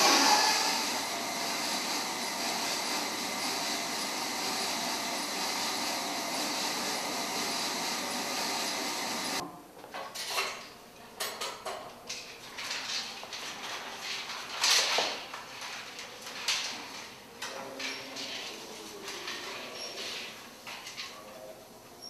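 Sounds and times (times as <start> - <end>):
film projector whirring: 0.0 - 9.4.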